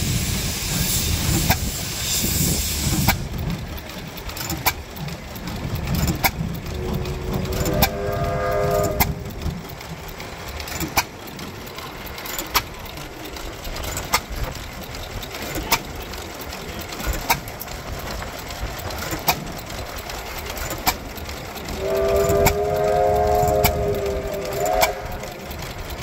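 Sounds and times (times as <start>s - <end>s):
steady whistle: 6.7s - 9.7s, 21.6s - 26.0s.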